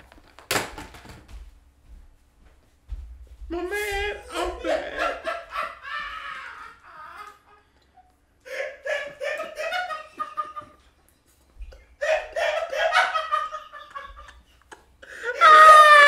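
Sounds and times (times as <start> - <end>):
man laughing: 3.7 - 11.0, 11.6 - 16.0.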